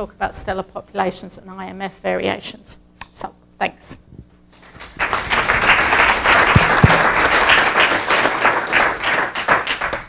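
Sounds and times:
audience applauding: 4.6 - 10.0.

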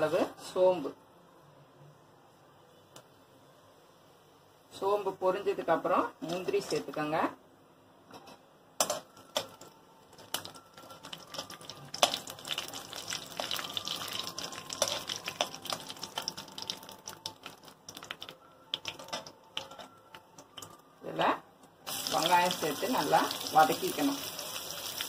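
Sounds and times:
spatula stirring: 8.8 - 20.0
seeds crackling in hot oil: 8.8 - 20.7, 21.8 - 25.0.

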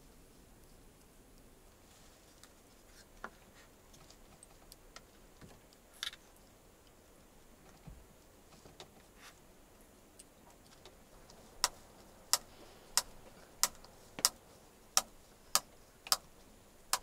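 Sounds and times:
small clicks: 10.1 - 17.0.

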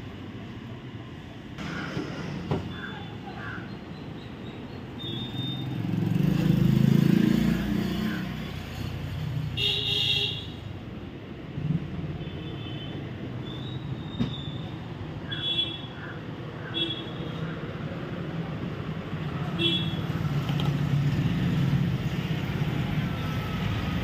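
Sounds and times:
vehicle passing: 5.6 - 8.4.

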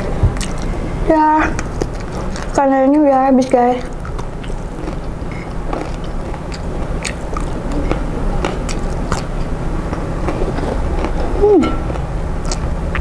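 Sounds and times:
crunchy chewing of raw vegetables: 0.0 - 3.0, 3.8 - 13.0
steady low hum: 0.0 - 13.0
sharp mouth clicks: 11.0 - 13.0.

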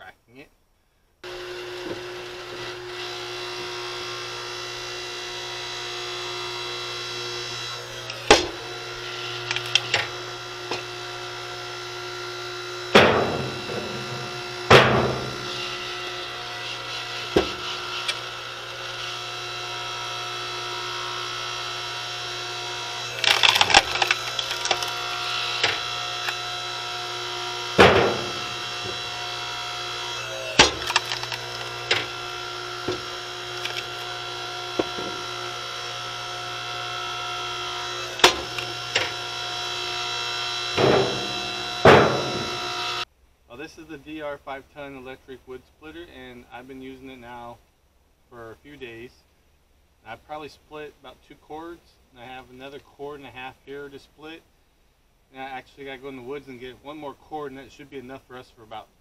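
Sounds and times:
log splitter motor and pump hum: 1.2 - 43.1
wood splitting cracks: 7.4 - 11.1, 12.9 - 19.4, 20.2 - 43.0
split wood being handled: 23.0 - 26.5, 27.8 - 36.1.

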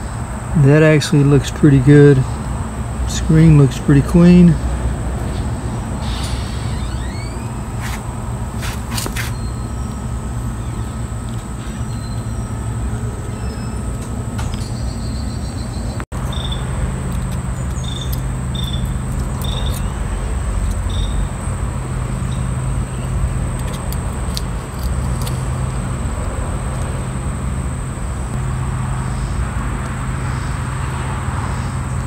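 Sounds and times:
low mechanical hum: 0.0 - 32.0
small metal parts clicking: 17.1 - 19.9, 23.5 - 25.5.

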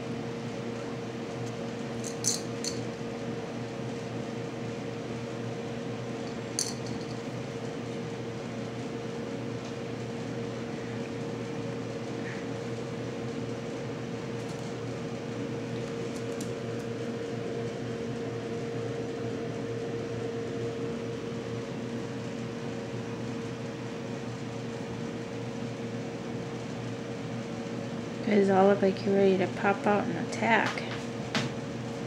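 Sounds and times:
steady mechanical hum: 0.0 - 32.0.

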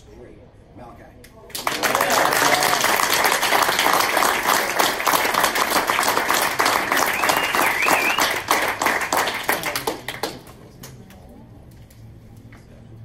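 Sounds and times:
audience applauding: 1.5 - 10.6
high whistle or whoop: 7.0 - 8.4.

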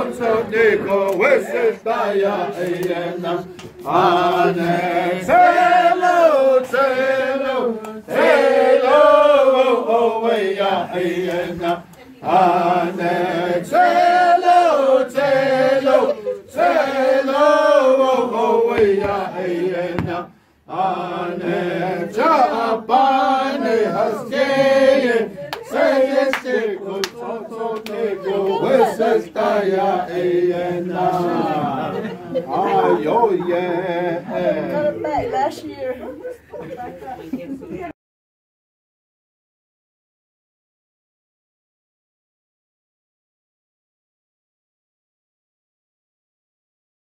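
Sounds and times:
group of voices chanting: 0.0 - 35.3.

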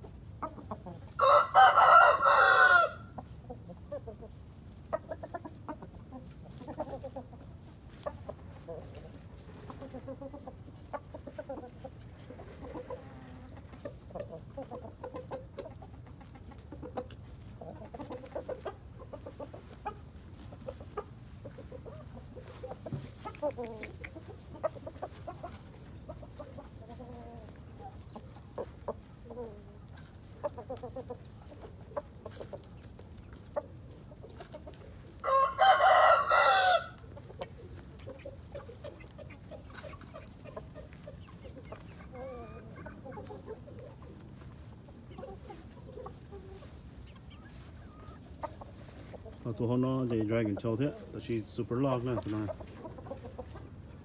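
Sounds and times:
chickens clucking softly: 0.0 - 54.0
rooster crowing: 1.2 - 3.1, 35.2 - 37.0.

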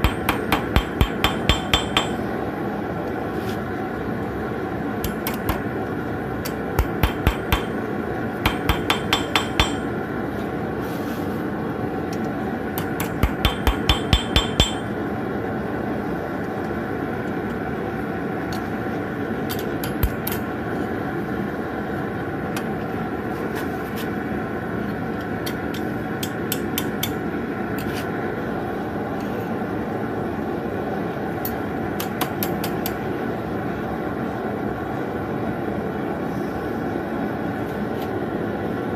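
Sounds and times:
hammer ringing on steel: 0.0 - 2.2, 13.0 - 14.9.

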